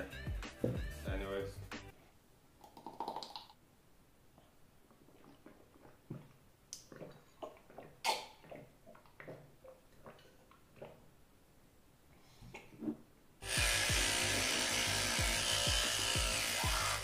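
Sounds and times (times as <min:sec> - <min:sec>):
person gulping water: 0:02.6 - 0:03.6, 0:04.4 - 0:11.2.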